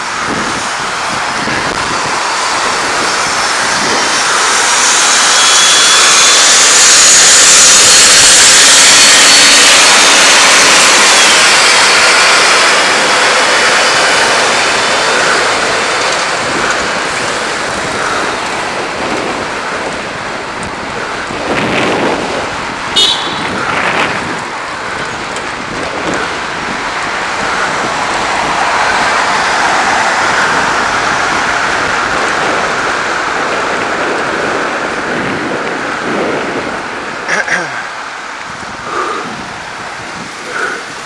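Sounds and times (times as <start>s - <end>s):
wind rushing: 0.0s - 37.3s, 38.0s - 41.0s
traffic passing: 0.0s - 41.0s
high-pitched ring: 4.8s - 12.3s.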